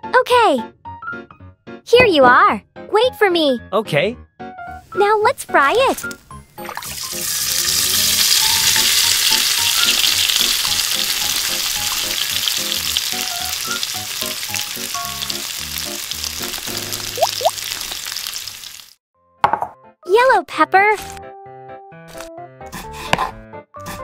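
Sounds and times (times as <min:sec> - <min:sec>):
deep-frying sizzle with crackling: 0:06.1 - 0:19.0.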